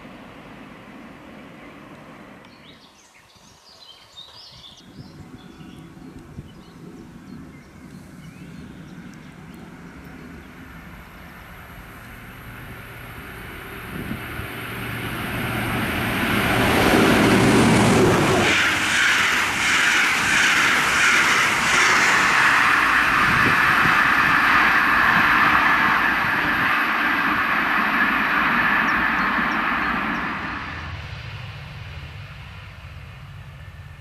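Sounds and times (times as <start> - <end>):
diesel train passing: 0.0 - 3.0, 4.8 - 34.0
train wheels rolling on rails: 9.0 - 34.0.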